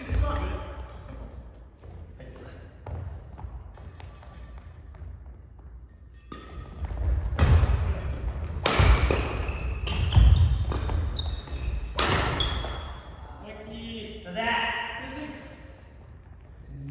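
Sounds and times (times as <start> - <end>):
racket hitting shuttlecock: 5.9 - 13.1.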